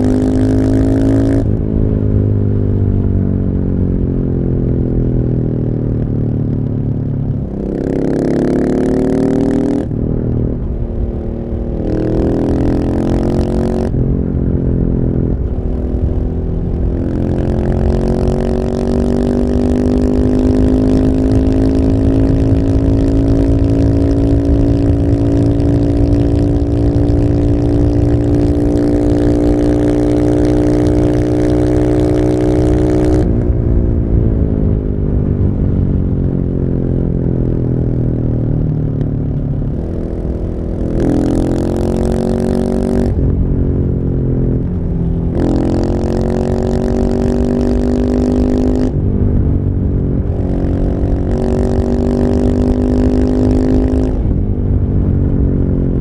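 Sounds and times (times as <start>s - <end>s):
motorcycle engine revving: 0.0s - 2.6s, 7.0s - 56.0s.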